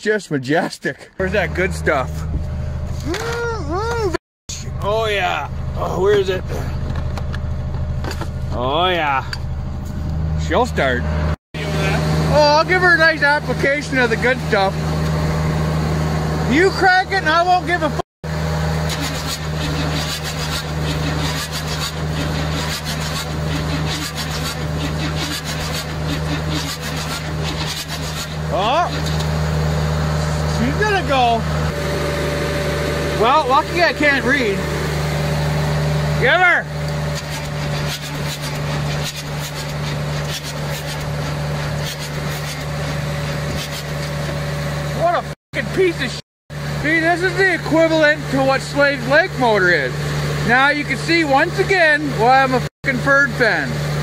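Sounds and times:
low engine drone: 0:01.2 - 0:54.0.

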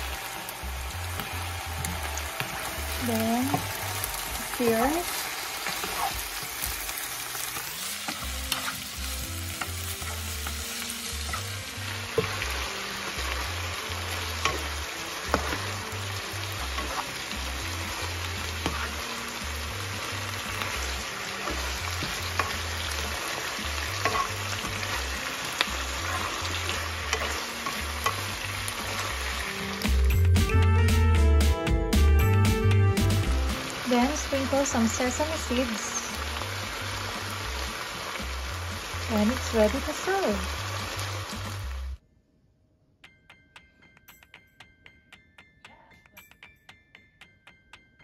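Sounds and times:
food sizzling in a frying pan: 0:00.0 - 0:30.4, 0:33.2 - 0:42.0
spatula stirring: 0:03.5 - 0:29.6
spatula tapping pan: 0:14.4 - 0:30.0.

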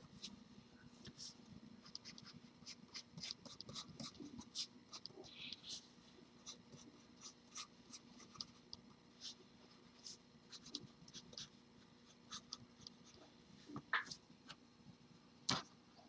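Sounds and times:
pencil scratching on paper: 0:01.1 - 0:08.6, 0:09.2 - 0:13.3.

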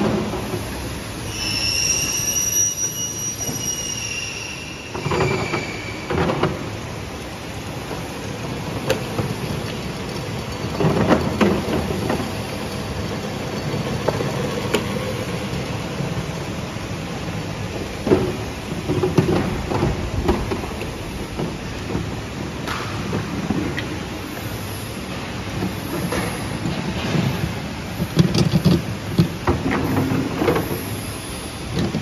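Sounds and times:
high squeal: 0:00.9 - 0:06.8.

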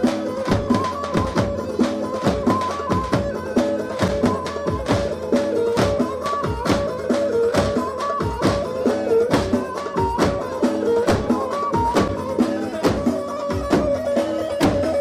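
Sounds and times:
folk dance melody: 0:00.0 - 0:15.0
bass drums beating: 0:05.8 - 0:15.0.

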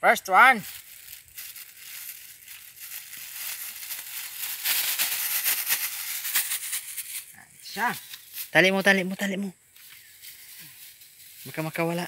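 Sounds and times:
plastic bag crinkling: 0:00.6 - 0:08.7.

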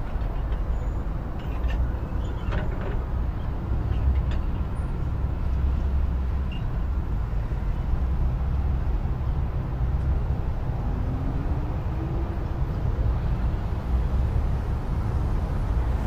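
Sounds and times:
road traffic rumble: 0:00.0 - 0:16.0.

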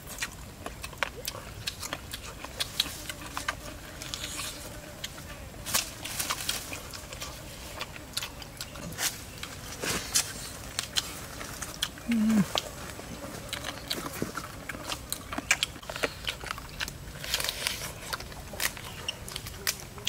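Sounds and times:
eating ribs chewing: 0:00.0 - 0:20.0
person humming mm: 0:12.0 - 0:12.8.

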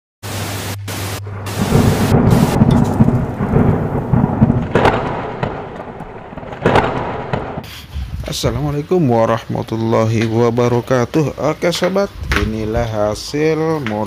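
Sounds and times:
static hiss: 0:00.2 - 0:04.3
sharp cracks of lightning: 0:00.6 - 0:07.6
low rumble of thunder: 0:01.2 - 0:07.6.

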